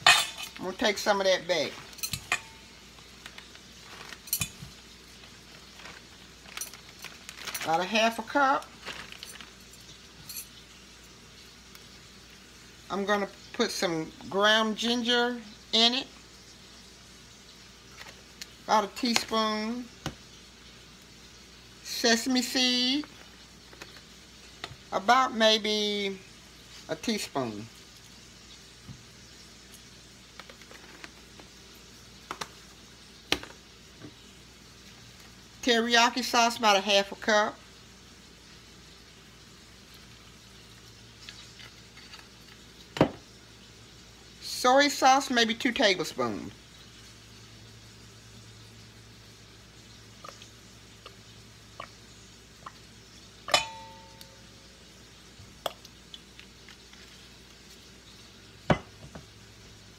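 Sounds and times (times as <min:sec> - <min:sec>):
bottle clinking on metal bowl: 0:00.0 - 0:00.6, 0:02.0 - 0:02.6, 0:53.5 - 0:54.4
metal bowl ringing: 0:02.0 - 0:02.7, 0:53.5 - 0:54.6.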